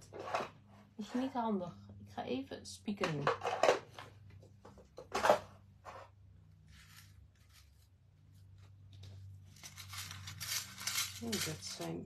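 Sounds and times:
rummaging through craft supplies: 0:00.0 - 0:01.5, 0:02.9 - 0:12.0.

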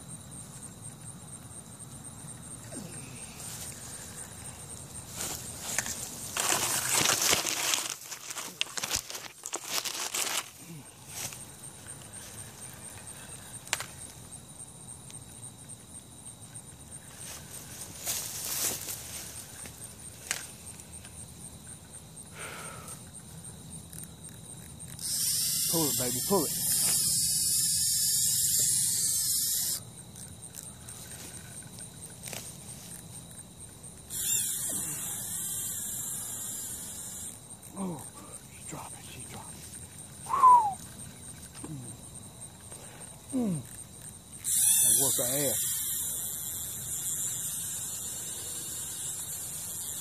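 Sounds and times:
insects trilling: 0:00.0 - 0:50.0
rustling: 0:03.3 - 0:13.1, 0:17.0 - 0:21.2
fishing reel drag buzzing: 0:24.9 - 0:29.8, 0:34.1 - 0:37.4, 0:44.4 - 0:50.0.

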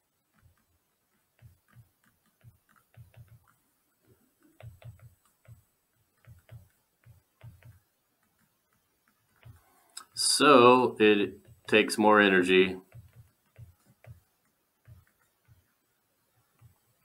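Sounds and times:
stylus tapping on tablet screen: 0:00.2 - 0:10.2, 0:11.4 - 0:11.8, 0:12.8 - 0:17.0.

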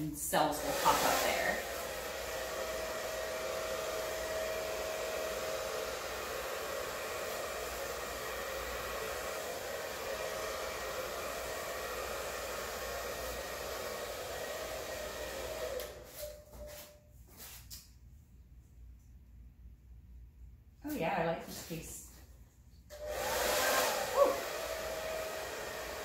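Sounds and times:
hair dryer blowing air: 0:00.0 - 0:16.9, 0:22.9 - 0:26.0.

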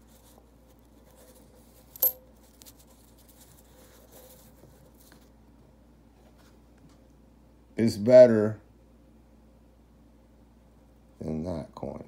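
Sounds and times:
coin clinking: 0:02.0 - 0:02.2.

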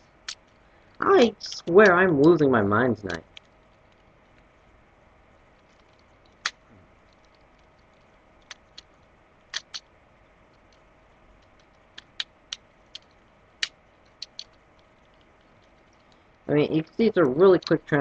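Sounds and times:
plastic toy clicks and snaps: 0:09.6 - 0:09.8.

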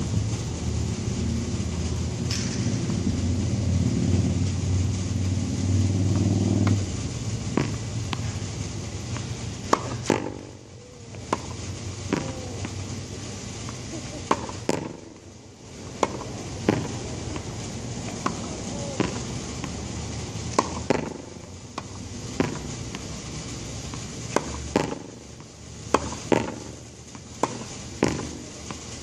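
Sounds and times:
low steady hum: 0:00.0 - 0:29.0
tennis ball struck with racket: 0:06.1 - 0:06.8, 0:07.5 - 0:08.4, 0:09.0 - 0:19.8, 0:20.4 - 0:23.1, 0:23.9 - 0:28.8
ball rebounding off wall: 0:07.5 - 0:08.4, 0:09.1 - 0:13.0, 0:13.6 - 0:19.8, 0:20.4 - 0:23.1, 0:23.9 - 0:25.3, 0:25.9 - 0:28.8.

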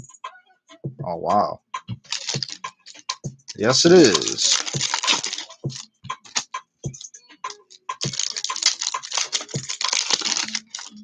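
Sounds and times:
foil wrappers crinkling: 0:02.1 - 0:06.4, 0:07.5 - 0:11.0
rustling: 0:02.1 - 0:06.4, 0:07.9 - 0:11.0
trading cards clicking: 0:02.1 - 0:11.0.

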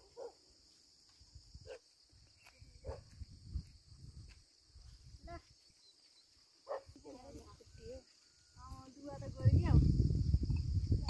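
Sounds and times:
high insect drone: 0:00.0 - 0:11.0
wind rumbling on microphone: 0:02.6 - 0:05.5, 0:08.6 - 0:11.0.

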